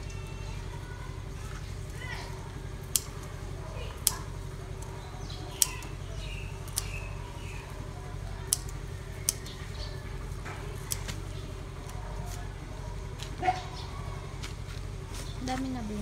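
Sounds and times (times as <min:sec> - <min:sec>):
steady low hum: 0:00.0 - 0:16.0
scissors snipping stems: 0:02.8 - 0:07.8, 0:08.4 - 0:12.5.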